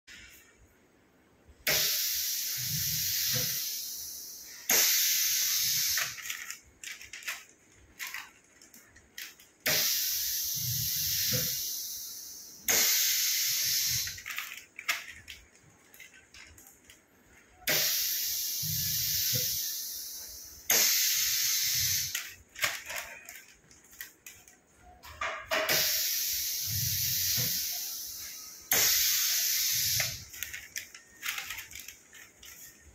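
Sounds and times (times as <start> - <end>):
compressed air hissing: 1.6 - 6.3, 9.6 - 14.3, 17.7 - 22.2, 25.7 - 30.4
foil pouches rustling: 6.0 - 9.6, 30.1 - 32.9.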